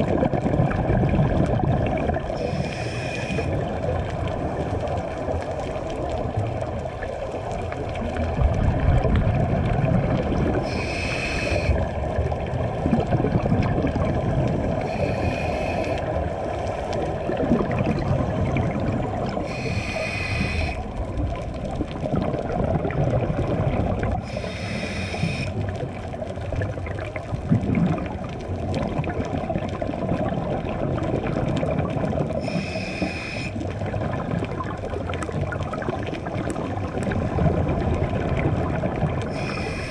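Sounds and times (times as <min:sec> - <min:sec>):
exhaled bubbles gurgling: 0:00.0 - 0:39.9
regulator inhalation hisses: 0:02.4 - 0:03.5, 0:10.6 - 0:11.8, 0:14.8 - 0:16.1, 0:19.4 - 0:20.9, 0:24.2 - 0:25.6, 0:32.4 - 0:33.6, 0:39.3 - 0:39.9.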